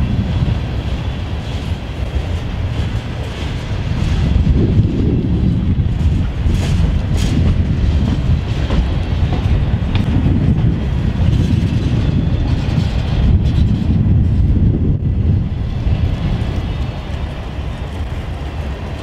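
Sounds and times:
train wheels rumbling on rails: 0:00.0 - 0:19.0
wheel clacks: 0:01.4 - 0:14.0.

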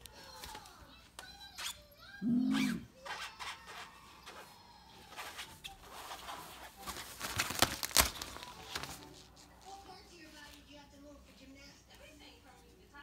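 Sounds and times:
nylon tent fabric rustling: 0:05.2 - 0:09.4.

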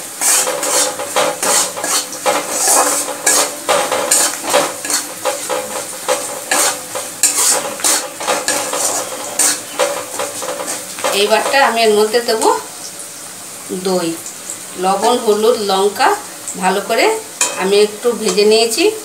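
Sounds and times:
metal spatula scraping pan: 0:00.0 - 0:12.6, 0:17.4 - 0:17.7
frying sizzle: 0:00.0 - 0:19.0.

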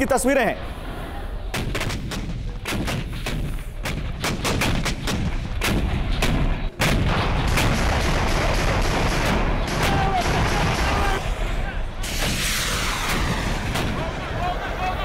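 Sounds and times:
automatic rifle gunfire: 0:01.6 - 0:11.2.

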